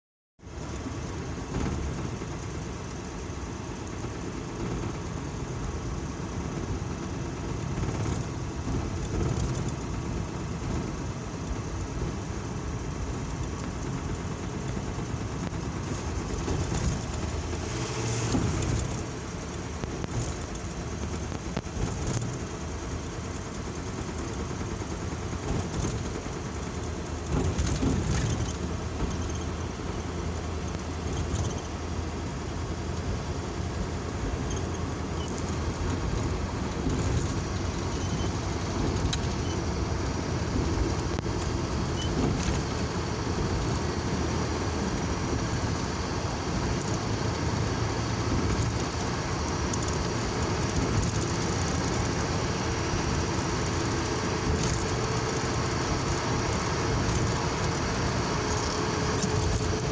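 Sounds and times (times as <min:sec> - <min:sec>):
car engine and road noise: 0:00.4 - 0:59.9
air rushing through sunroof: 0:06.4 - 0:31.1.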